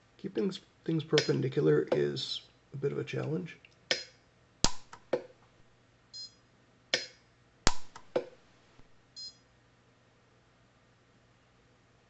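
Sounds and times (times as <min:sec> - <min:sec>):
welder snapping cracks: 0:03.9 - 0:05.2, 0:07.7 - 0:08.3.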